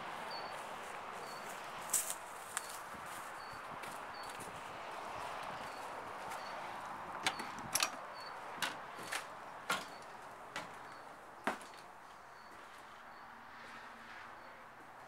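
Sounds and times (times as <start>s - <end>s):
outdoor background: 0.0s - 15.0s.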